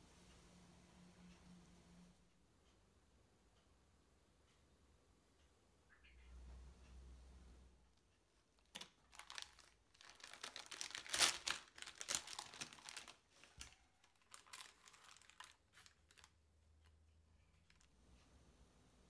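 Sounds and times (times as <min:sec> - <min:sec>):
plastic packaging crinkling: 0:08.6 - 0:16.4, 0:17.4 - 0:17.9.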